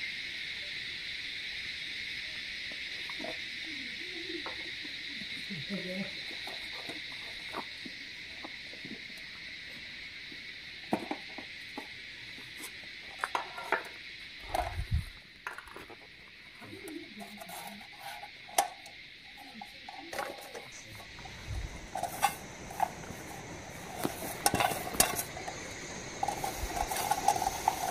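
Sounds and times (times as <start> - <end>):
pots and lid clinking: 20.0 - 27.9
high-pitched hum: 20.8 - 27.9.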